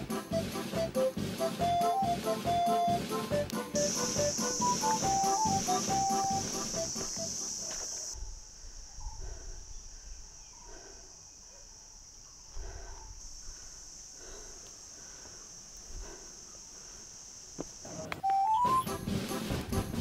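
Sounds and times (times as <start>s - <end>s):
footsteps on dirt path: 0.0s - 8.2s
insects chirring: 1.0s - 20.0s.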